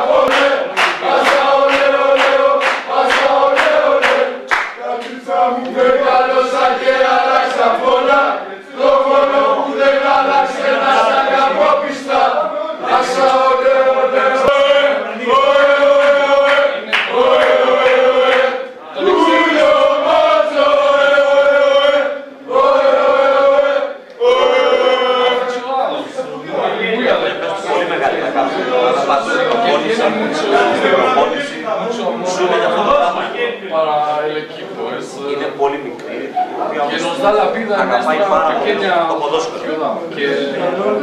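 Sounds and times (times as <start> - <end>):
choir chanting in unison: 0.0 - 31.6.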